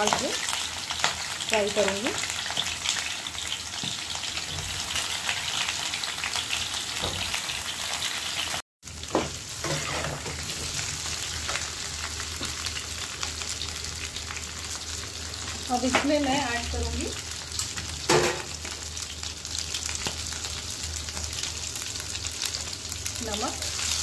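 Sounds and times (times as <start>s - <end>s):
vegetables sizzling in oil: 0.0s - 24.0s
metal spatula scraping: 9.6s - 10.4s.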